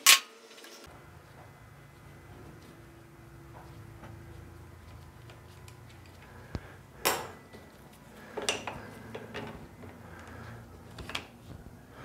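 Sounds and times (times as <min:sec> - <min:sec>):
metal tools and bolts clinking: 0:08.3 - 0:09.6.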